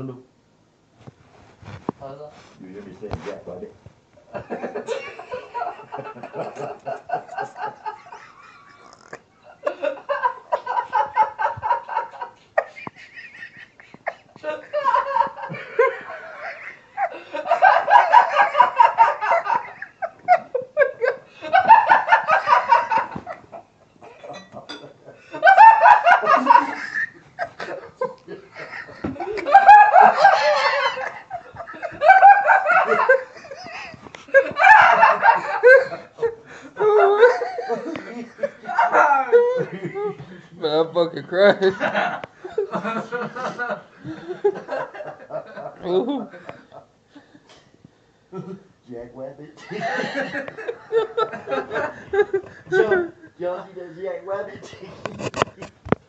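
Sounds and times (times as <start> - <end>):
person laughing: 4.6 - 23.4, 25.4 - 40.3.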